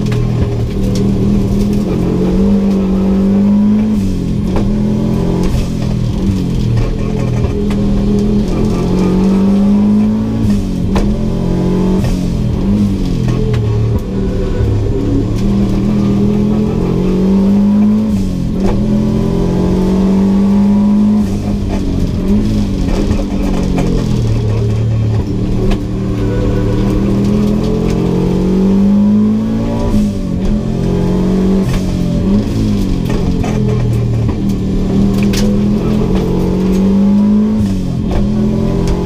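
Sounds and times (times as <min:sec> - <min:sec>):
car engine revving: 0:00.0 - 0:39.0.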